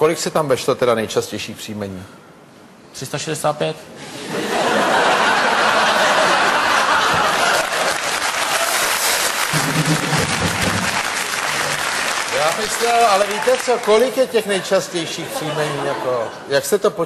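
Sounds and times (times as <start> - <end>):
audience laughter: 4.2 - 8.8, 9.5 - 11.0
audience applauding: 5.7 - 15.0.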